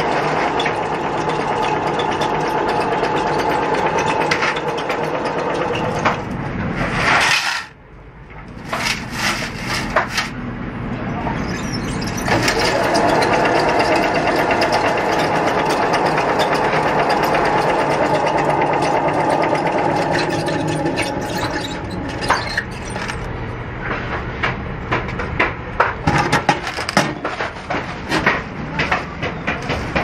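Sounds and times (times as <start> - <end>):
spin drum whirring: 0.0 - 6.8, 11.7 - 23.3
metal clanks and chain rattles: 19.4 - 23.3.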